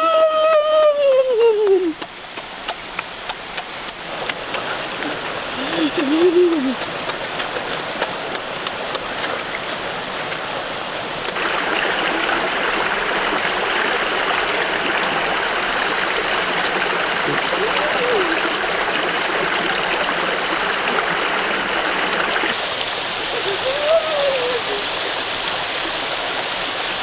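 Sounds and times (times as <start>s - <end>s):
flowing stream water: 0.0s - 27.0s.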